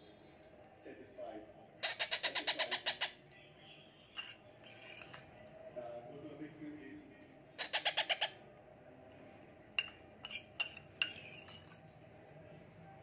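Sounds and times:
parakeet chick begging calls: 1.8s - 3.2s, 7.6s - 8.4s
spoon clinking on steel bowl: 4.2s - 5.3s, 9.8s - 12.0s.

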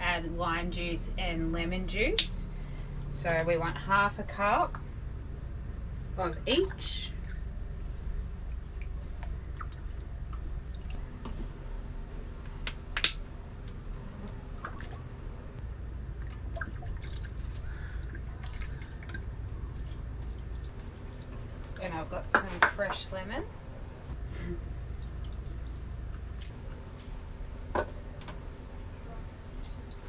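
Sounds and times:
low hum: 0.0s - 30.0s
juice dripping and splashing: 5.9s - 11.4s, 14.5s - 21.9s, 24.4s - 27.3s.

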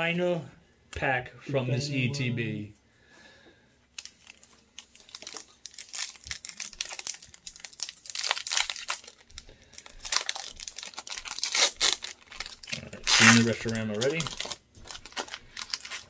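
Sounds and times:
foil wrapper crinkling and tearing: 3.9s - 16.0s.

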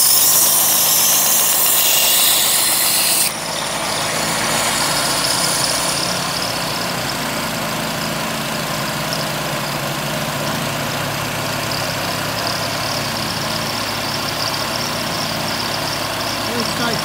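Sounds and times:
belt sander sanding hiss: 0.0s - 8.2s
belt sander motor running: 0.0s - 17.0s
generator engine running: 3.3s - 17.0s.

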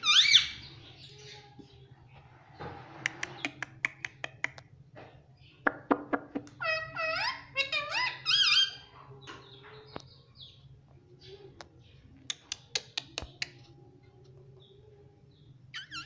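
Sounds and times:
parakeet calling: 0.0s - 0.7s, 6.6s - 8.9s, 15.7s - 16.0s.

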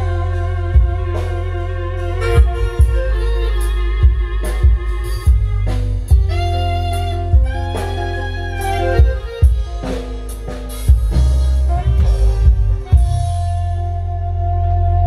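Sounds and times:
heavy bass: 0.0s - 15.0s
held keyboard notes: 0.0s - 15.0s.

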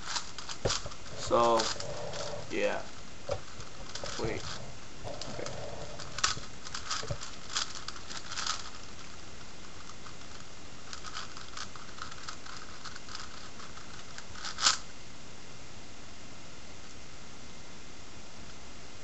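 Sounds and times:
puzzle cube layers clicking: 5.1s - 9.1s, 9.7s - 14.8s.

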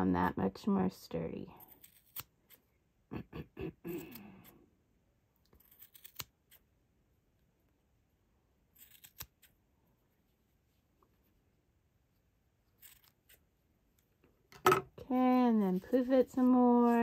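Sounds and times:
scissors snipping yarn: 1.6s - 2.7s, 3.9s - 4.5s, 5.4s - 6.7s, 8.7s - 9.6s, 12.6s - 14.1s.

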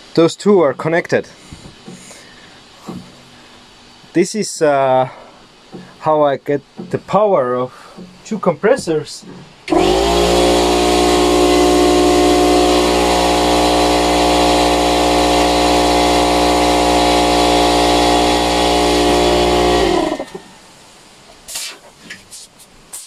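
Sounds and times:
air compressor running: 9.2s - 20.6s
motor running down: 9.7s - 20.5s.

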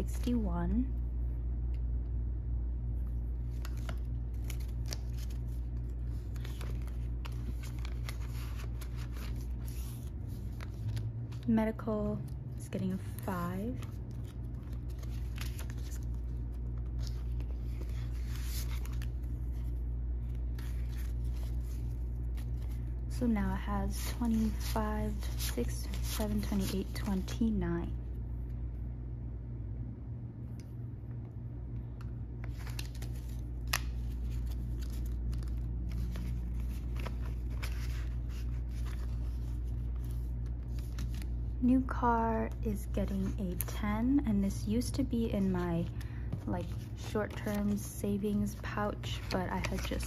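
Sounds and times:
steady low hum: 0.0s - 50.0s
paper bills rustling: 3.4s - 11.5s, 12.9s - 22.8s, 23.8s - 27.4s, 32.4s - 41.4s, 45.4s - 50.0s
plastic pouch crinkling: 13.7s - 19.3s.

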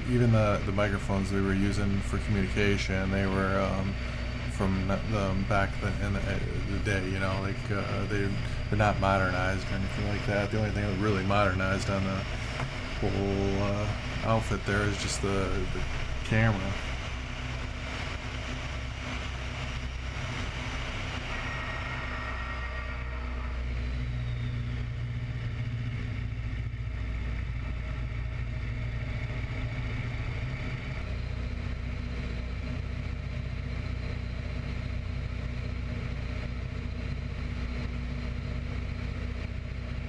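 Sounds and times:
faint high whine: 0.0s - 40.0s
propeller plane engine running: 0.0s - 40.0s.

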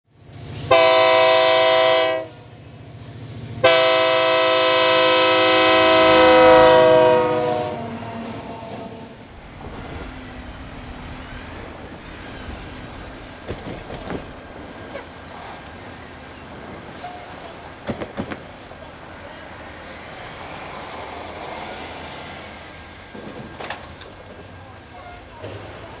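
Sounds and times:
train rumbling past: 0.1s - 26.0s
locomotive horn blasts: 0.7s - 2.5s, 3.6s - 9.2s
train wheel clicks: 12.1s - 16.0s.

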